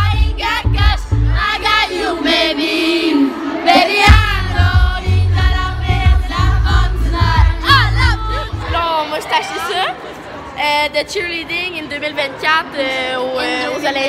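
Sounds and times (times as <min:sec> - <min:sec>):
heavy bass beat: 0:00.0 - 0:01.8, 0:03.8 - 0:08.9
sung vocals: 0:00.0 - 0:08.9.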